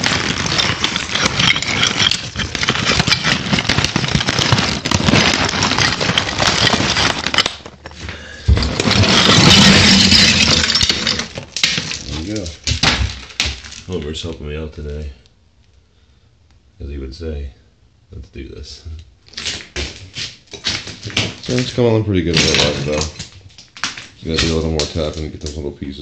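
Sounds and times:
rubbing and scraping on microphone: 0:00.0 - 0:08.0.

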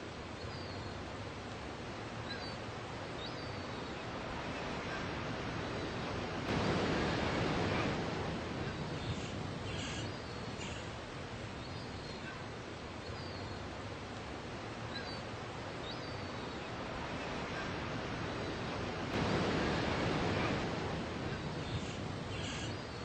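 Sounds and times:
surf washing up the beach: 0:01.0 - 0:23.0.

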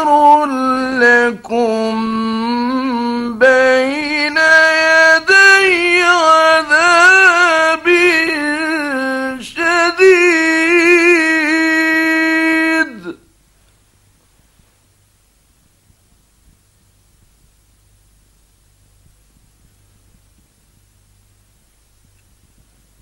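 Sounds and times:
man reciting in melodic chant: 0:00.0 - 0:13.3.

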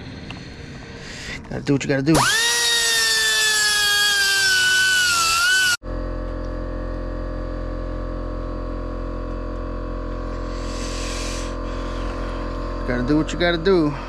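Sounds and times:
steady mechanical hum: 0:00.0 - 0:14.0
air grinder whining: 0:02.1 - 0:05.8, 0:10.2 - 0:14.0.

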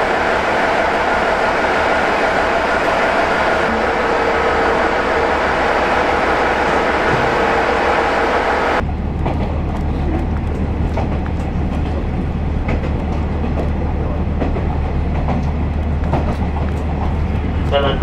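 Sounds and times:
diesel railcar running: 0:00.0 - 0:18.0
low diesel drone: 0:00.0 - 0:18.0
wheels clicking over rail joints: 0:08.8 - 0:18.0.

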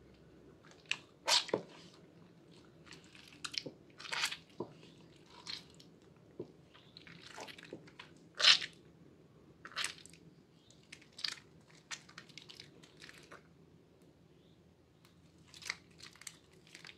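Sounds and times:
hands squelching soap lather: 0:00.6 - 0:06.0, 0:06.6 - 0:08.7.

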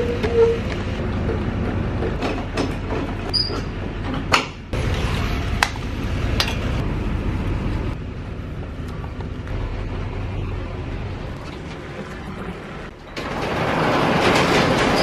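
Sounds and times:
low rumble: 0:04.8 - 0:14.5.

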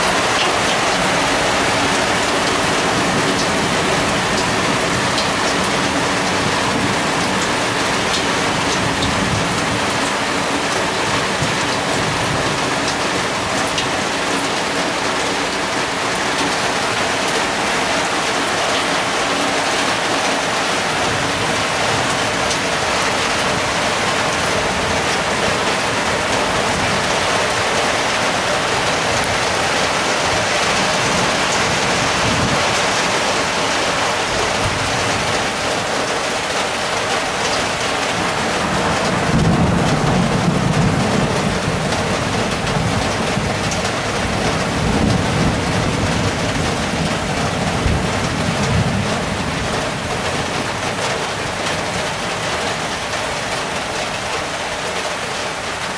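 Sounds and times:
heavy rain hissing: 0:00.0 - 0:55.9
thunder rolling: 0:19.9 - 0:33.6, 0:38.4 - 0:49.6.

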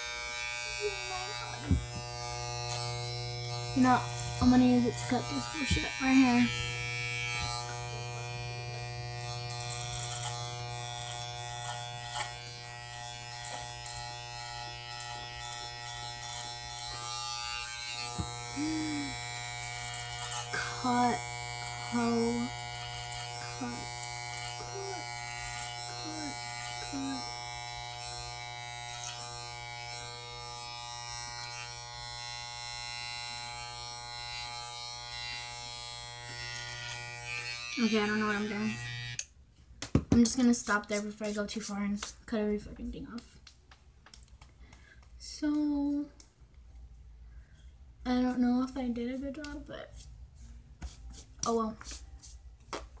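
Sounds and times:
electric hair clippers buzzing: 0:00.0 - 0:39.4.

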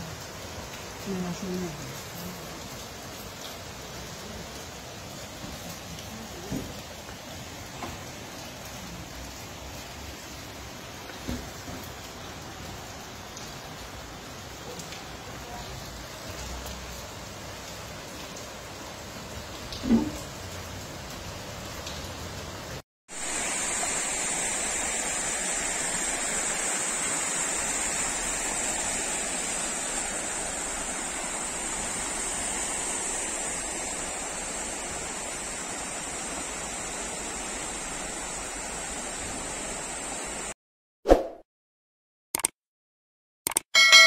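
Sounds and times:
heavy rain: 0:00.0 - 0:40.6
floodwater running: 0:23.1 - 0:40.5
click: 0:43.5 - 0:43.7
brief sound effect: 0:43.8 - 0:44.0.

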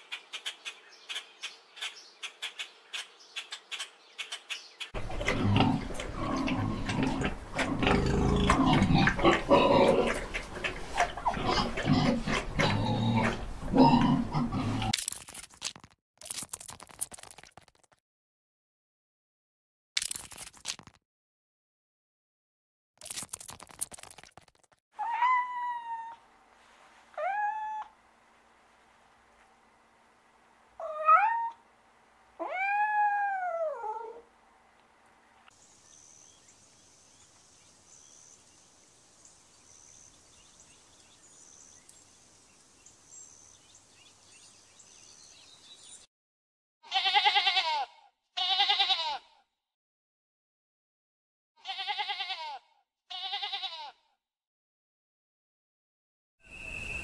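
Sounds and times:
faint chirps: 0:56.4 - 0:57.0.

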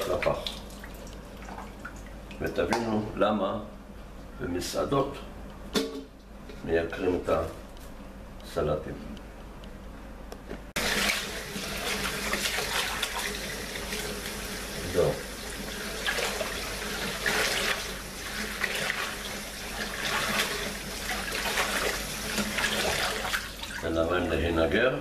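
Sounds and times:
tap water running into bowl: 0:10.8 - 0:23.8.

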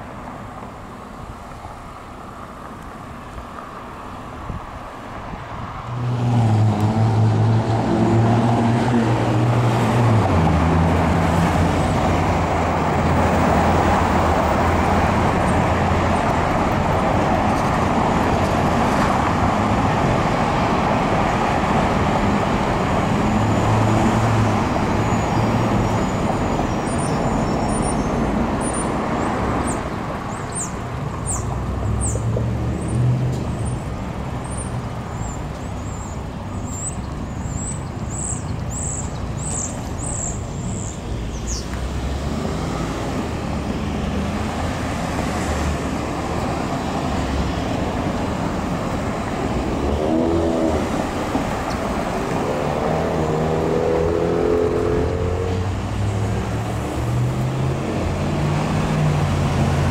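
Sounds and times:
traffic rumble: 0:00.0 - 0:59.9
car accelerating: 0:05.8 - 0:26.4, 0:41.7 - 0:59.9.

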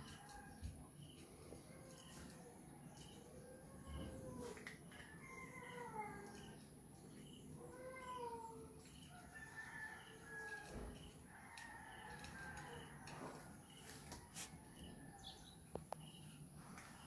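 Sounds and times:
cats meowing faintly: 0:01.4 - 0:09.1.

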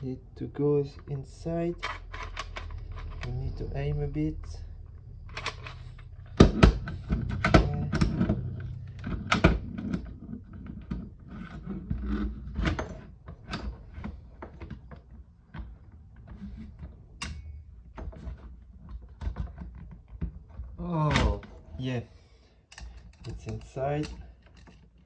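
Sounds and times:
plastic parts clicking and knocking: 0:01.0 - 0:03.4, 0:04.4 - 0:21.5, 0:22.7 - 0:25.0.

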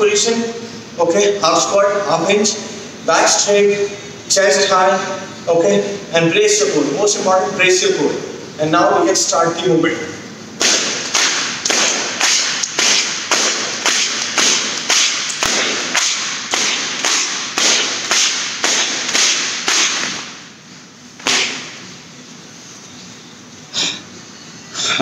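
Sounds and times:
battle ropes slapping floor: 0:10.6 - 0:20.4, 0:21.2 - 0:21.8
rope thud: 0:10.6 - 0:20.5, 0:21.2 - 0:21.9.

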